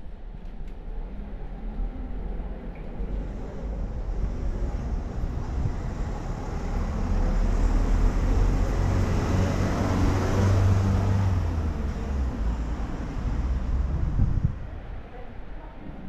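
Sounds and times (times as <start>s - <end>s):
vehicle engine rumble passing: 1.0s - 14.9s.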